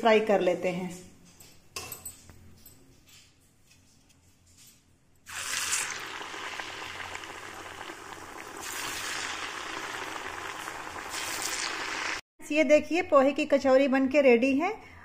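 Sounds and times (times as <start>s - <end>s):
oil sizzling and bubbling: 5.2s - 12.2s.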